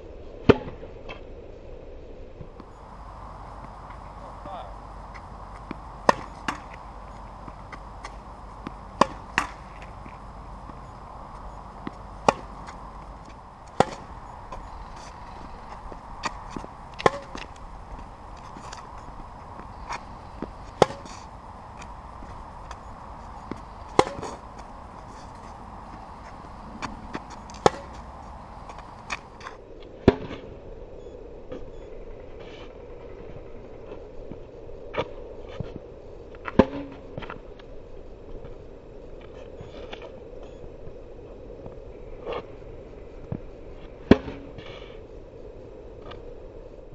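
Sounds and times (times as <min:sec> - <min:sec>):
faint steady hum: 0:01.6 - 0:46.9
tennis racket hitting ball: 0:02.6 - 0:29.6.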